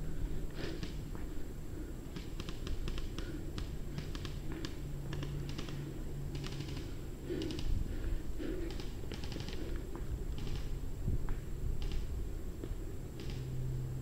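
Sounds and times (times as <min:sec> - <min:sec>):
low steady hum: 0:00.0 - 0:14.0
airsoft guns firing bursts: 0:02.1 - 0:07.7, 0:08.4 - 0:10.8, 0:13.2 - 0:13.5.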